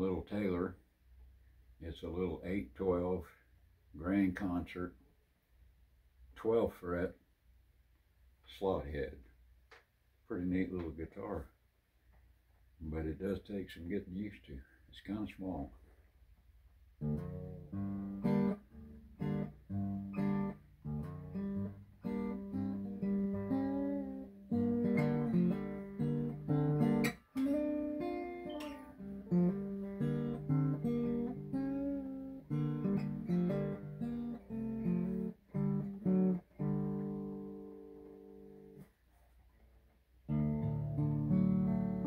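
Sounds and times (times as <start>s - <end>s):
acoustic guitar playing: 17.0s - 39.3s, 40.2s - 42.0s.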